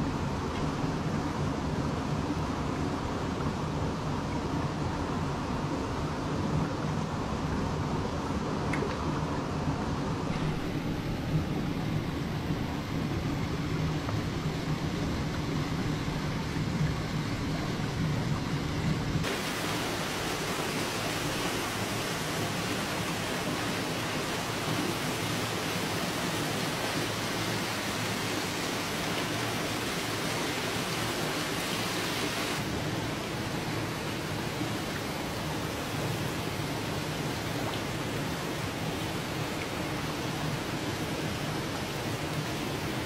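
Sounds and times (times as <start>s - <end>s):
rushing hiss of water: 19.2s - 43.0s.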